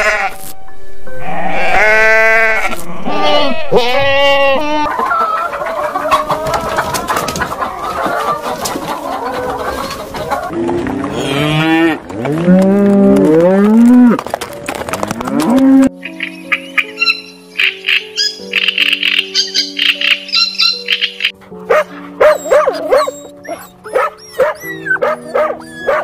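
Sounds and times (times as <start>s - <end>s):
hens clucking: 3.7s - 13.5s
cow mooing: 10.5s - 14.2s.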